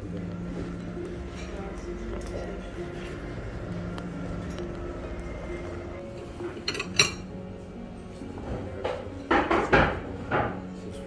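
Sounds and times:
plates and cutlery clattering: 6.5s - 7.3s, 8.4s - 10.7s.

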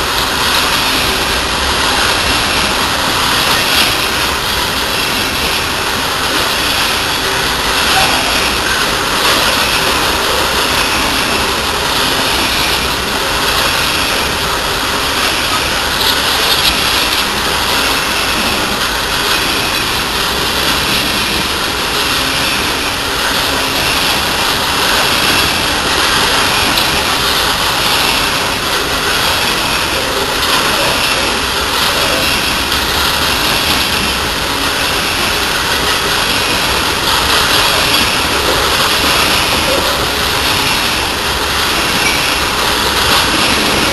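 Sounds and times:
train wheels on rails: 0.0s - 43.9s.

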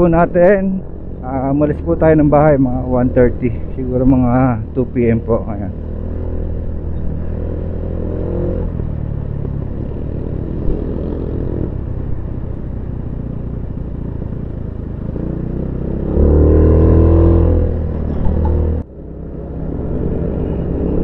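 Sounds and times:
motorcycle engine accelerating: 0.0s - 21.0s
road and wind noise: 0.0s - 21.0s.

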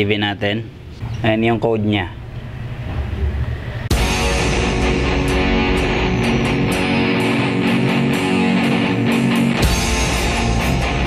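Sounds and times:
deep bass hit: 2.2s - 8.3s
guitar-led intro music: 3.9s - 11.0s.

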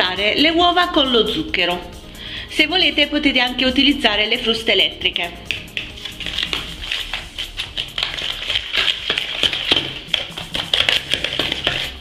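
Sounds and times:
fork beating eggs in plastic bowl: 4.4s - 12.0s.

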